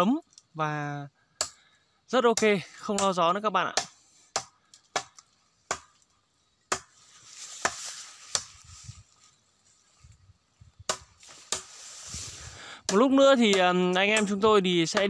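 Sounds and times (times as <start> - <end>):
rustling hiss: 5.2 - 12.8.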